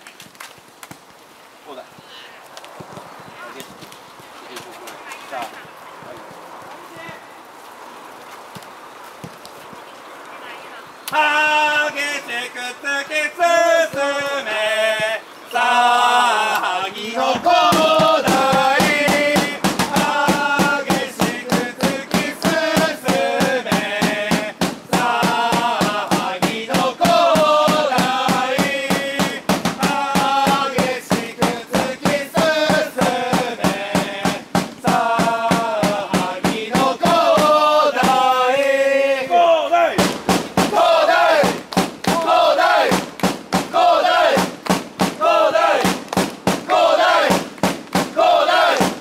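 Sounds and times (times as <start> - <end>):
crowd chanting in unison: 11.1 - 40.0, 40.6 - 46.0, 46.6 - 49.0
large drum beating: 17.6 - 38.2, 40.0 - 49.0.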